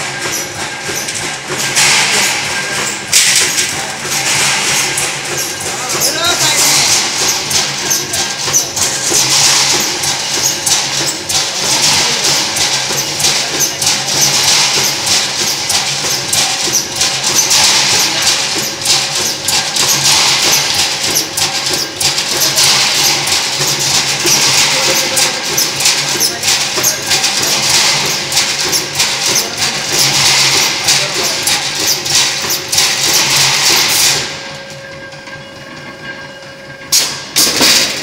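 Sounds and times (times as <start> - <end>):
machine drone: 0.0 - 38.0.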